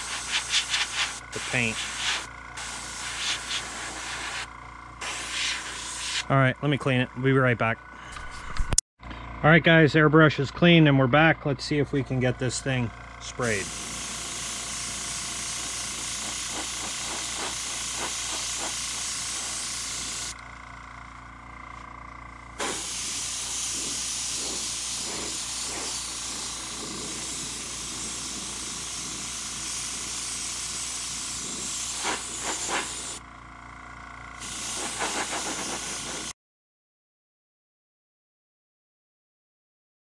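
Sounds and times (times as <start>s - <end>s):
airbrush spraying hiss: 0.0s - 6.2s, 13.4s - 20.4s, 22.6s - 33.2s, 34.4s - 36.3s.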